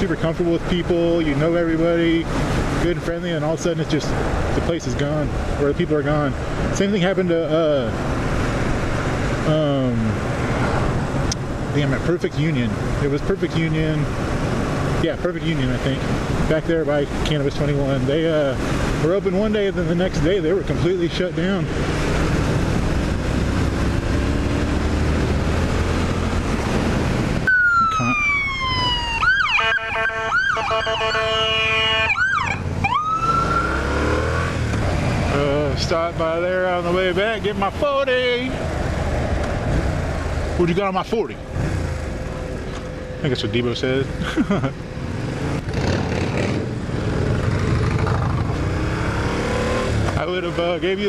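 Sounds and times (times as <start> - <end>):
ambulance siren: 27.4 - 33.9
steady horn tone: 29.6 - 32.2.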